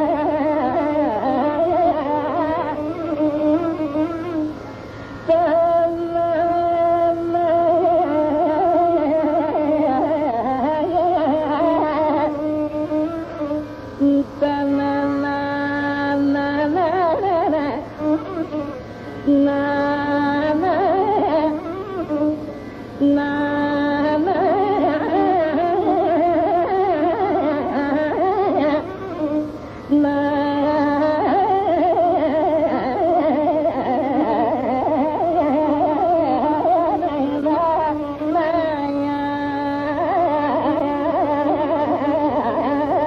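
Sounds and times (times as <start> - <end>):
faint low drone: 0.0 - 43.0
ornamented vocal melody: 5.3 - 43.0.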